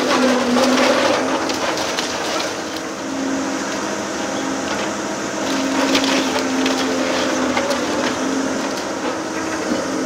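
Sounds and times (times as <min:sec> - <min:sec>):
timbers cracking and splintering: 0:00.0 - 0:02.9, 0:05.4 - 0:09.2
excavator engine running: 0:00.0 - 0:10.0.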